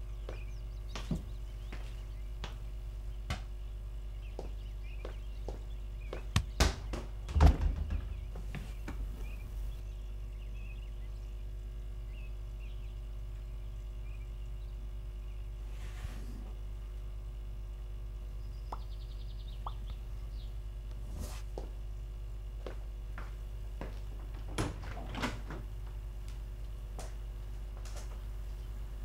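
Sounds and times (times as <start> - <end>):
steady low hum: 0.0 - 29.0
dull thuds and knocks: 6.1 - 9.4.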